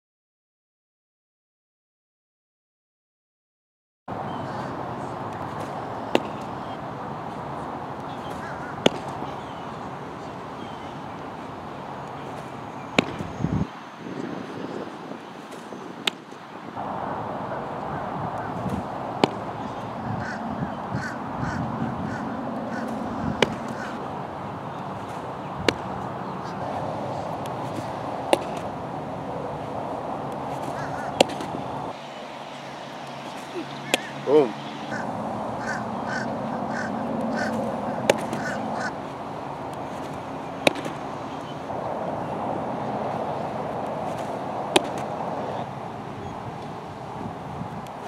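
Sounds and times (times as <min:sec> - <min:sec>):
steady outdoor hiss: 0:04.1 - 0:48.0
bird calling: 0:04.2 - 0:07.0, 0:07.6 - 0:16.3, 0:17.5 - 0:28.8, 0:30.3 - 0:39.1, 0:39.8 - 0:42.4
baseball popping into mitt: 0:05.4 - 0:06.5, 0:08.2 - 0:09.2, 0:12.4 - 0:13.3, 0:18.6 - 0:19.5, 0:22.8 - 0:24.0, 0:25.1 - 0:26.0, 0:27.4 - 0:28.8, 0:30.3 - 0:31.6, 0:33.3 - 0:34.1, 0:37.3 - 0:38.6, 0:39.7 - 0:41.0, 0:44.1 - 0:45.1.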